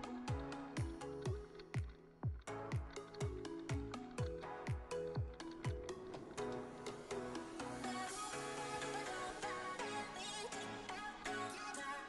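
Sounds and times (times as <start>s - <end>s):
kick drum beat: 0.0s - 6.0s
held synth notes: 0.0s - 12.0s.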